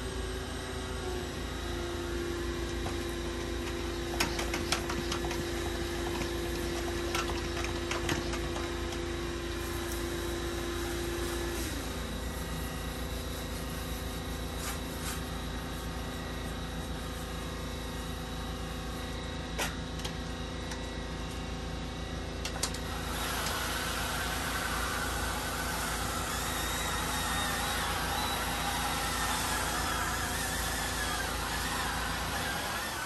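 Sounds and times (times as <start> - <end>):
pressure washer spraying: 9.6 - 18.2, 22.8 - 33.0.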